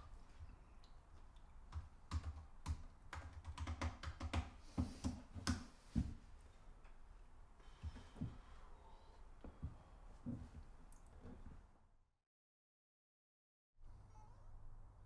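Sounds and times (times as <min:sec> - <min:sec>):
typing on laptop keyboard: 0:01.7 - 0:04.6.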